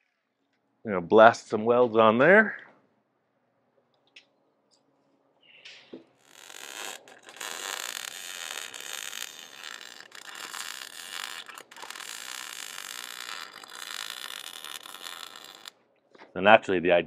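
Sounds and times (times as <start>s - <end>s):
welder arc crackling: 6.1s - 15.7s.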